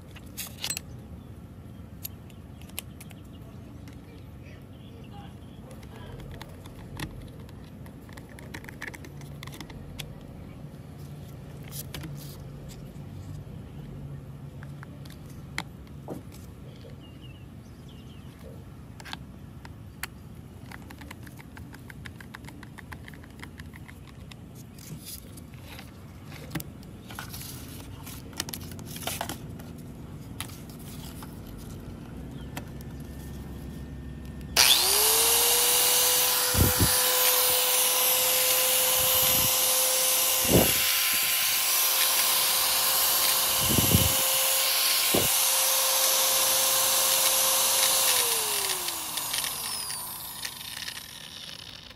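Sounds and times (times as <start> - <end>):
angle grinder whining: 34.6 - 51.9.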